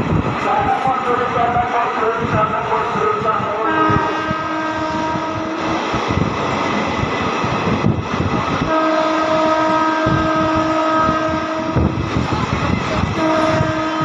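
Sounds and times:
train horn blasts: 3.6s - 5.8s, 8.6s - 12.0s, 13.1s - 14.0s.

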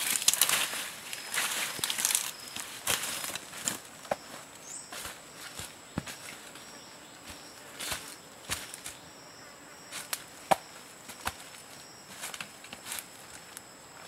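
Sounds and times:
plant stems snapping: 0.0s - 0.7s, 1.8s - 2.3s
high insect whine: 0.0s - 14.0s.

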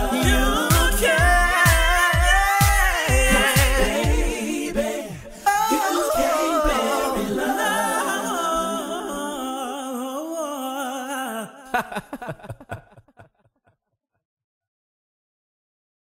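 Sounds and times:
voices singing: 0.0s - 12.8s.

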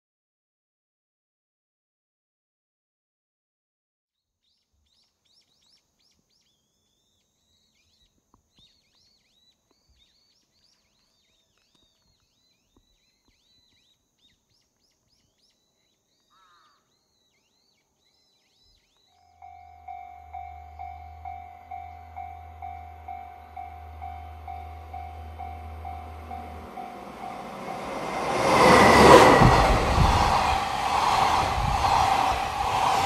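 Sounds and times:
high bird chirps: 5.0s - 28.8s.

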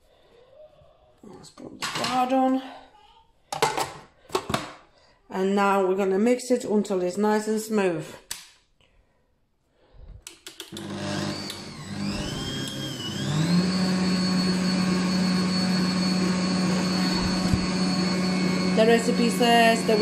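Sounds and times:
stand mixer motor whining: 10.7s - 20.0s.

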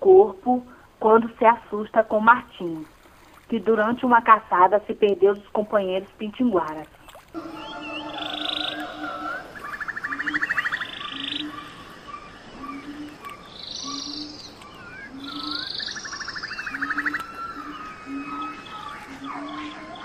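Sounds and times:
frogs croaking: 0.0s - 20.0s
bird chirps: 7.0s - 20.0s
buzzy frog trills: 7.4s - 20.0s.

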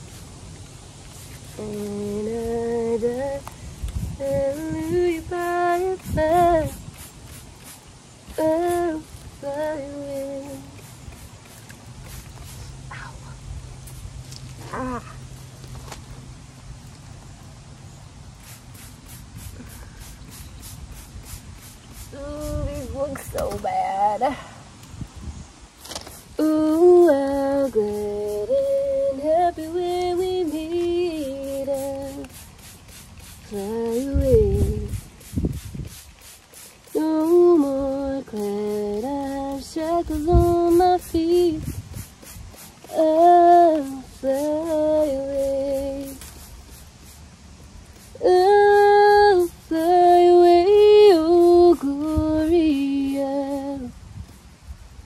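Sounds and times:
woman singing wordless tune: 1.5s - 3.5s, 4.1s - 6.8s, 8.3s - 10.8s, 22.1s - 24.4s, 26.4s - 32.3s, 33.5s - 34.9s, 37.0s - 41.7s, 42.9s - 46.2s, 48.2s - 53.9s
woman humming a tune: 1.6s - 3.5s, 14.6s - 15.2s.

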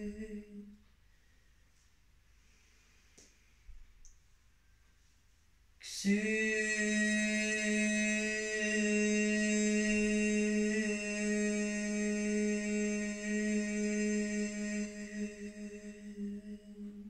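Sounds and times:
person chanting a long tone: 0.0s - 0.8s, 5.8s - 17.0s.

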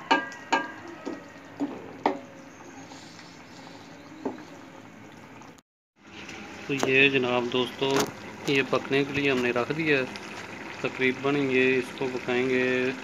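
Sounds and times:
spoon knocking against pan: 0.0s - 2.3s
curry bubbling: 1.1s - 13.0s.

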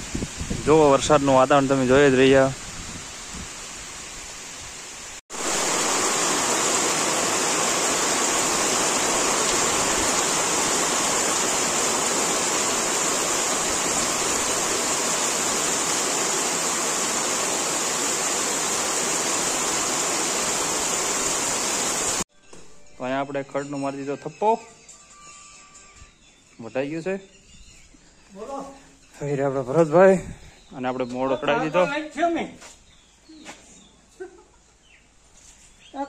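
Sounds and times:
heavy rain pouring: 0.0s - 22.3s
wind in trees: 0.0s - 22.3s, 29.8s - 31.5s.

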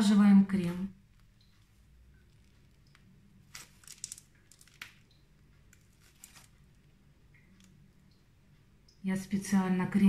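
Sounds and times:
plastic piping bag crinkling: 2.2s - 7.0s.

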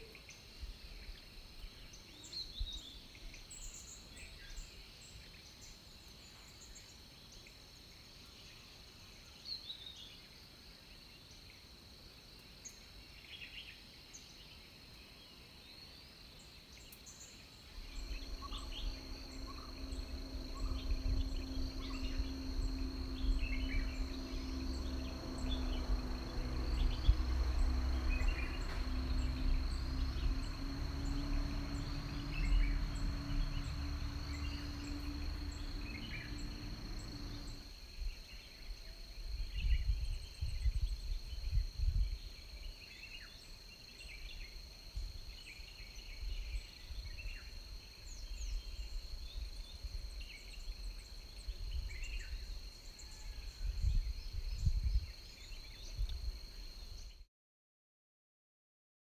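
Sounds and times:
low hum: 17.5s - 38.0s
high-pitched insect drone: 17.6s - 40.0s
wind rumbling on microphone: 17.7s - 37.7s, 39.3s - 42.4s, 53.1s - 56.6s.

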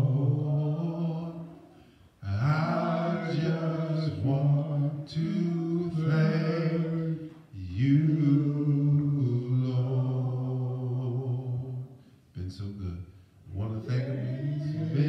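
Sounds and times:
short breaths: 1.6s - 2.2s.

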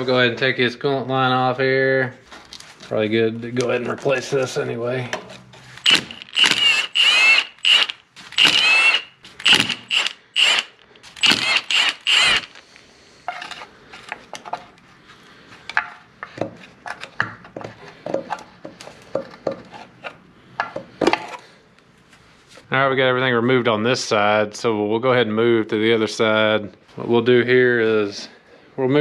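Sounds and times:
impact wrench hammering: 5.8s - 12.6s.

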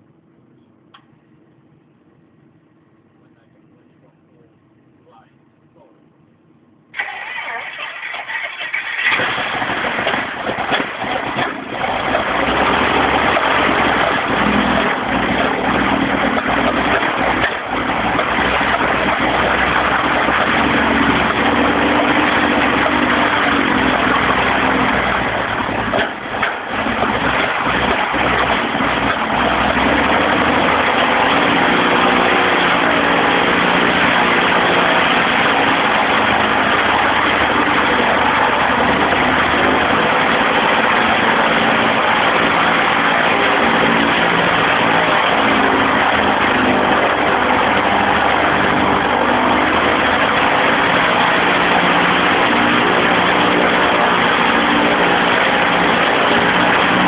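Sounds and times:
aircraft engine running: 7.0s - 57.0s
propeller air rush: 27.5s - 57.0s.

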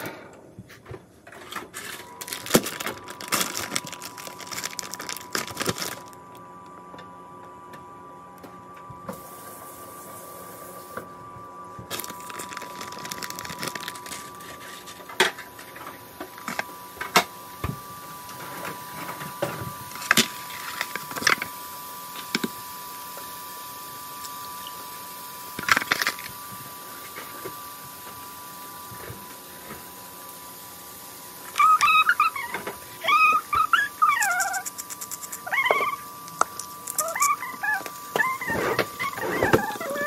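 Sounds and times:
egg cracking: 2.2s - 6.3s, 11.9s - 14.4s, 34.2s - 39.7s.

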